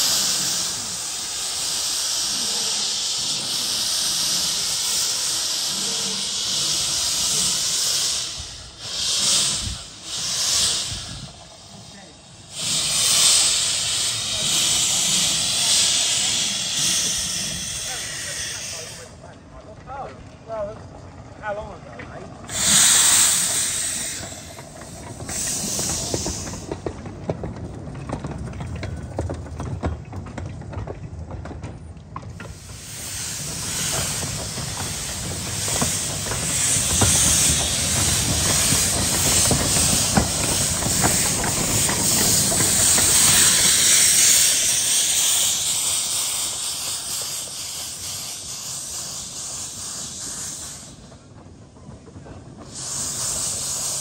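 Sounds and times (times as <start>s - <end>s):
steam hissing from locomotive: 0.0s - 19.3s, 21.4s - 27.4s, 32.4s - 54.0s
low rumble with rattles and clicks: 19.2s - 44.2s, 50.9s - 54.0s.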